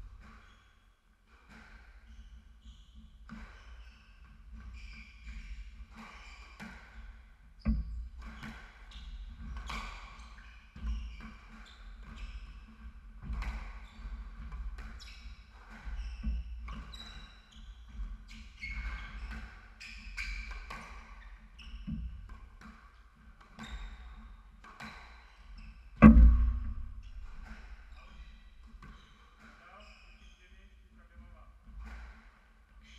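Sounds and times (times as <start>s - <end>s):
sneakers squeaking on floor: 0.1s - 32.9s
loud heavy thud: 26.0s - 27.0s.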